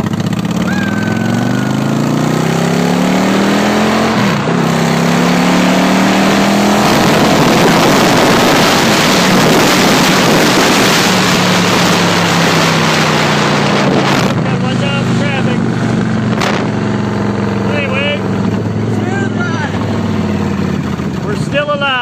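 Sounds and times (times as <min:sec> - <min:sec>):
motorcycle engine accelerating: 0:00.0 - 0:22.0
wind noise on microphone: 0:06.4 - 0:14.6.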